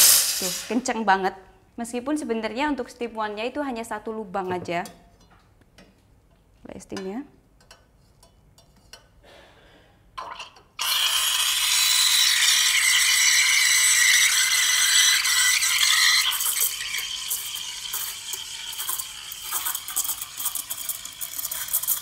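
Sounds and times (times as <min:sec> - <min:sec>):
steam wand hissing and screeching: 0:00.0 - 0:00.8.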